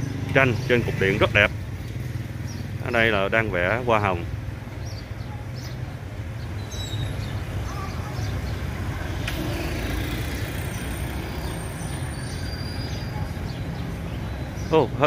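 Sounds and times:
low street rumble: 0.0 - 15.0.

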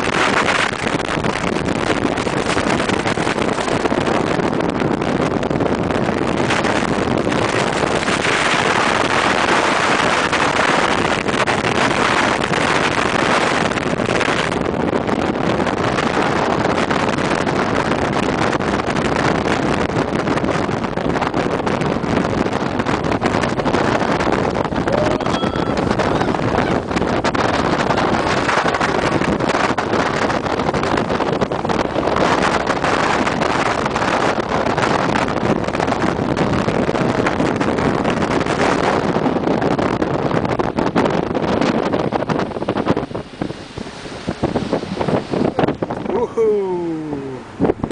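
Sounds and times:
water rushing: 0.0 - 18.7, 23.0 - 35.1, 41.0 - 47.9
motorboat engine: 0.0 - 47.9
wind buffeting microphone: 0.0 - 47.9.

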